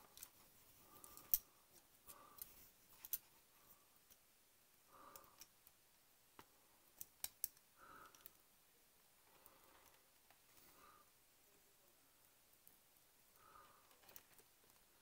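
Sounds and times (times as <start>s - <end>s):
small plastic parts clicking: 5.1s - 5.8s, 6.9s - 8.4s.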